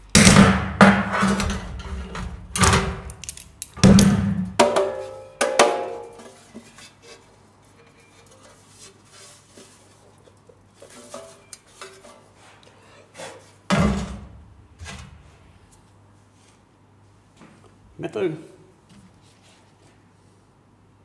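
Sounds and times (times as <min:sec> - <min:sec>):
metal toolbox clanks and rattles: 0:00.8 - 0:03.0.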